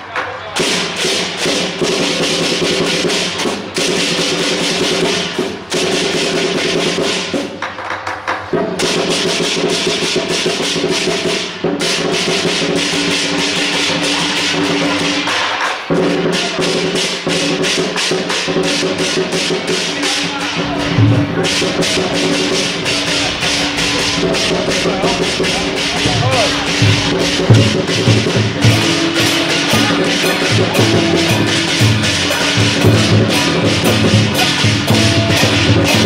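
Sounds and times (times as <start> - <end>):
crashing cymbals: 0.6 - 7.6, 8.5 - 36.0
big drum beaten rapidly: 0.6 - 7.7, 8.5 - 36.0
steady ringing tones: 19.9 - 36.0.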